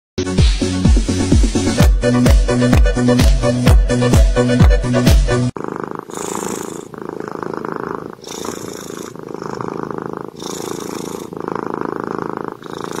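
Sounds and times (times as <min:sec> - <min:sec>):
cat purring: 0:05.5 - 0:13.0.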